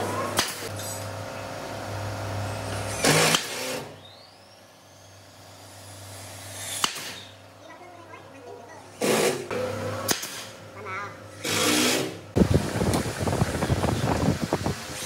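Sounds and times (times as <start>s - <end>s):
power tool humming: 0.0s - 7.3s, 11.3s - 15.0s.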